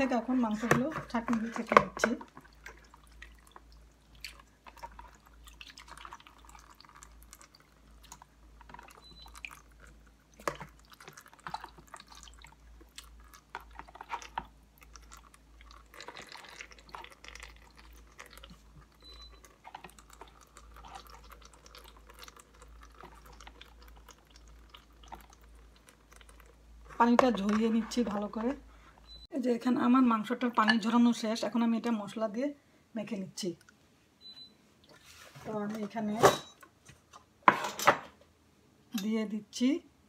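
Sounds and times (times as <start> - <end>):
water dripping: 1.3 - 27.7.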